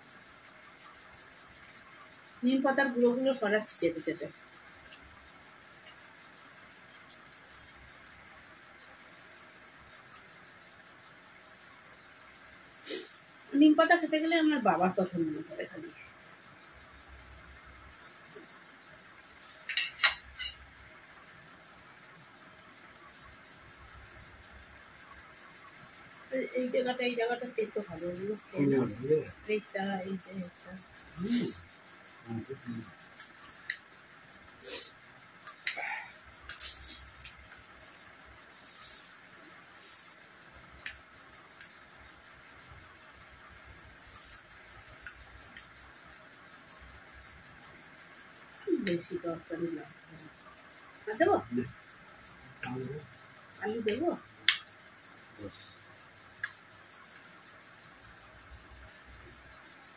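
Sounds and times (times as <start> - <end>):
faint steady hiss: 0.0 - 59.9
tableware clinking: 19.7 - 20.6.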